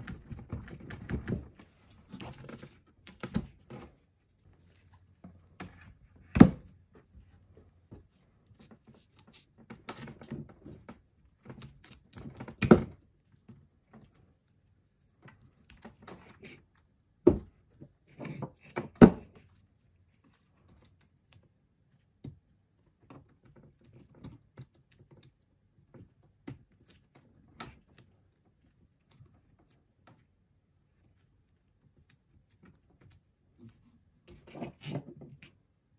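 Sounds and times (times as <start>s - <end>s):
rustling wires: 0.0s - 18.7s
handling and scraping: 0.0s - 35.8s.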